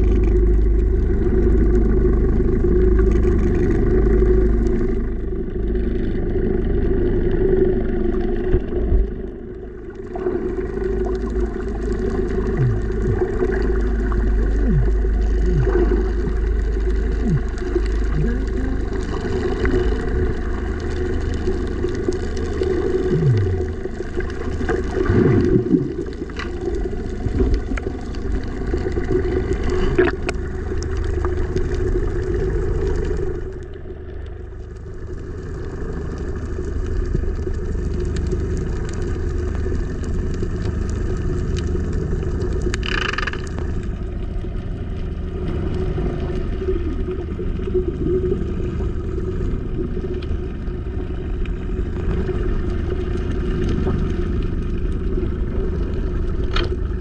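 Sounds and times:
muffled motorboat engine underwater: 0:00.0 - 0:57.0
underwater clicks: 0:10.1 - 0:47.0, 0:50.0 - 0:57.0.

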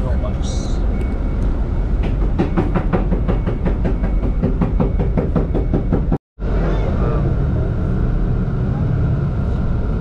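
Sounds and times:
bus engine low rumble: 0:00.0 - 0:10.0.

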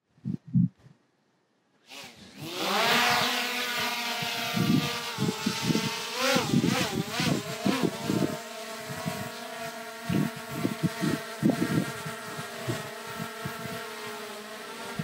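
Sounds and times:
wind rumbling on microphone: 0:00.0 - 0:01.0, 0:04.1 - 0:09.4, 0:10.0 - 0:14.0
drone motors whining: 0:01.9 - 0:15.0.

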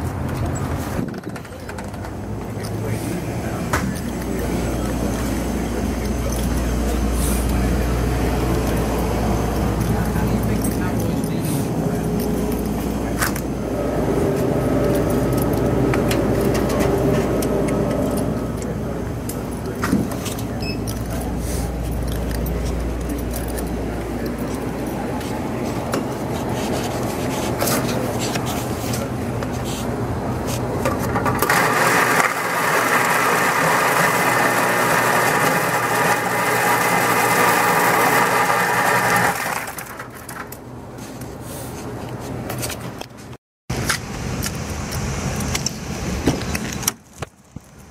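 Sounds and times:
low hum: 0:02.1 - 0:28.2.

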